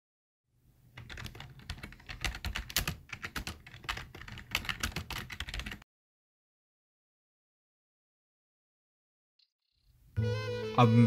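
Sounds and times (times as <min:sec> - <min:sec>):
rapid keyboard typing: 0:01.0 - 0:05.8.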